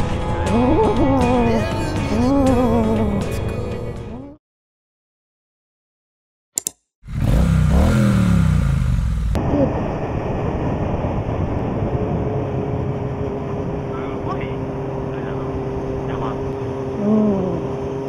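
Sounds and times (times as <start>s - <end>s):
motorcycle running steadily: 0.0s - 3.4s, 7.0s - 18.0s
brief click: 6.6s - 6.8s
motorcycle engine revving: 7.0s - 18.0s.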